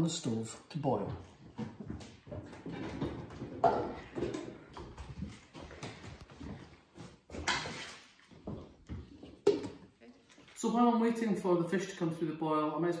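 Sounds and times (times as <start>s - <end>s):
saucepan knocks and clatters: 1.7s - 5.2s.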